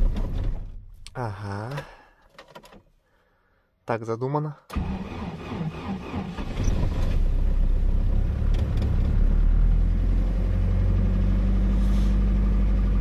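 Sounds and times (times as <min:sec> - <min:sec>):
car engine starting and idling: 0:04.7 - 0:13.0.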